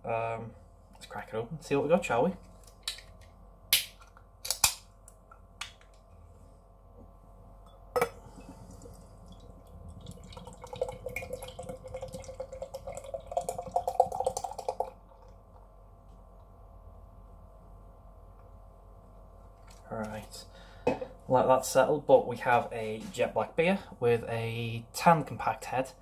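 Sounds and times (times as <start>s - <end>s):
beer can cracked open: 3.7s - 4.8s
beer pouring into glass: 8.5s - 15.0s.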